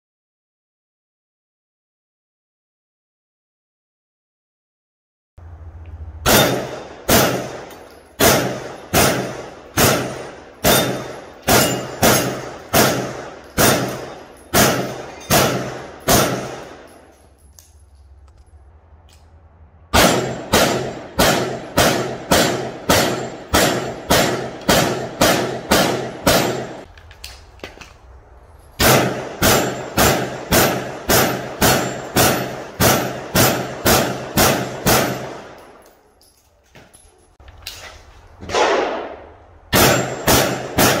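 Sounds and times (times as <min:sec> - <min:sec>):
carbine gunshots: 0:06.2 - 0:17.0, 0:19.9 - 0:26.9, 0:28.8 - 0:35.6, 0:38.5 - 0:41.0
steel targets ringing: 0:06.2 - 0:17.9, 0:20.0 - 0:26.9, 0:28.5 - 0:36.3, 0:39.7 - 0:41.0.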